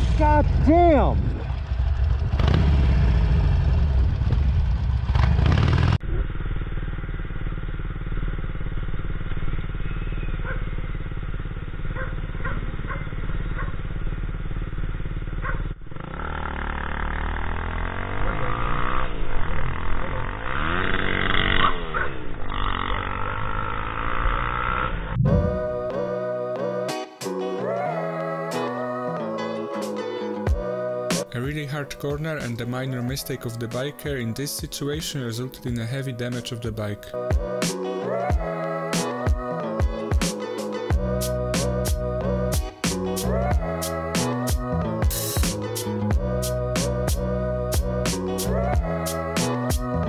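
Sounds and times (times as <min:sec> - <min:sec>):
motorcycle engines: 0:00.0 - 0:25.9
wind: 0:00.0 - 0:26.3
guitar music: 0:25.3 - 0:32.0, 0:36.9 - 0:50.0.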